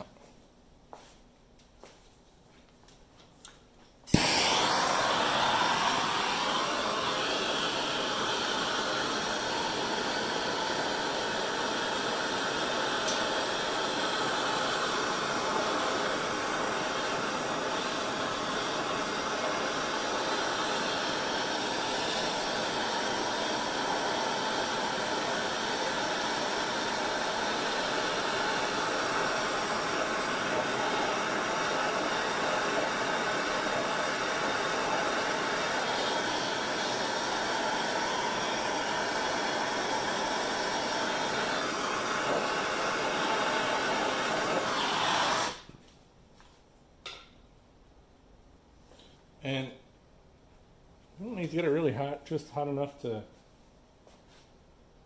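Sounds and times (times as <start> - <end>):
heating tool hissing: 4.1 - 45.7.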